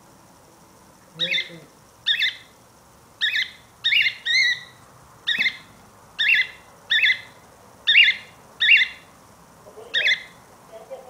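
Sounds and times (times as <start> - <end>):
cockatiel chirping: 1.2 - 2.5, 3.2 - 9.1, 9.9 - 10.4.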